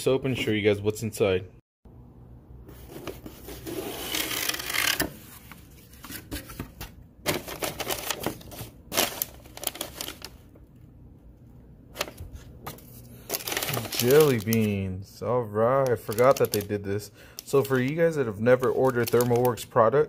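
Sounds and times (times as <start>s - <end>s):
packing paper rustling: 2.8s - 10.5s, 11.9s - 14.8s, 15.8s - 19.7s.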